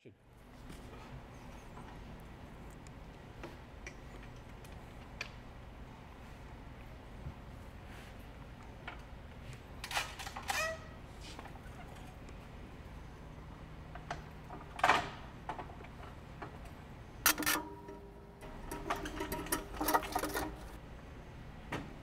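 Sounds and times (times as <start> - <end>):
ladder clack: 17.3 - 20.8
metal ladder clanking: 17.3 - 20.8.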